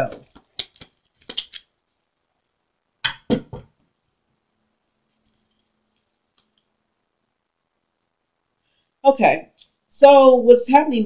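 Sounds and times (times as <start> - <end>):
cards snapping: 0.1 - 1.7.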